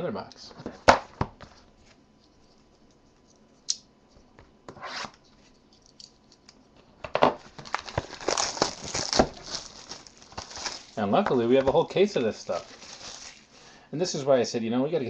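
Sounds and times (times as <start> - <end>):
plastic wrapper crinkling and tearing: 7.4 - 13.6.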